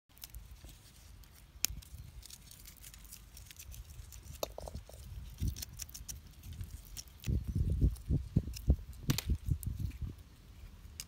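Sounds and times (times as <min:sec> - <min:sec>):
dried chillies crackling: 0:00.1 - 0:11.0.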